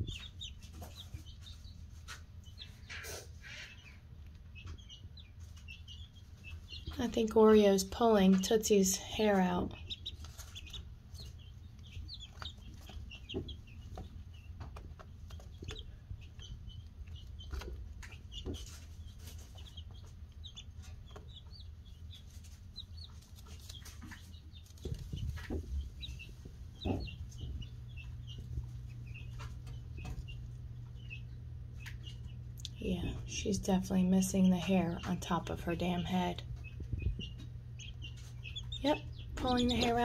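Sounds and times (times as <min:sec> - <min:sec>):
chicks peeping: 0:00.0 - 0:40.0
steady low hum: 0:00.0 - 0:40.0
soft knocks and rustles: 0:23.2 - 0:30.4.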